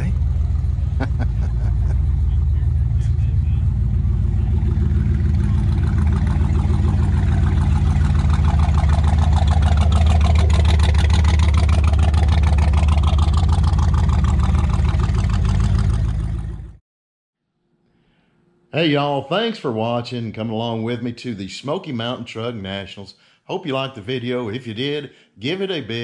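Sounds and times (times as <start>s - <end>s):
pickup truck engine exhaust rumble: 0.0s - 16.8s.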